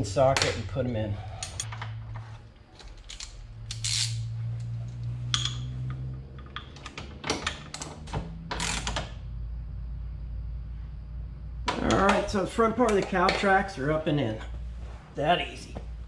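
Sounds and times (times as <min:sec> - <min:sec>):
low steady hum: 0:00.0 - 0:16.0
metallic clicks of tools and bolts: 0:01.4 - 0:02.0, 0:02.8 - 0:09.2.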